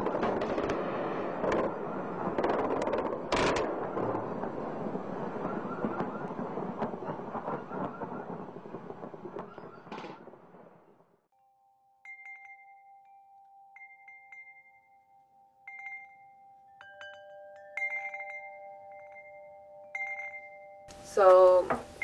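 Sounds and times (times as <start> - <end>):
rumbling noise: 0.0 - 11.2
chime notes: 11.4 - 22.0.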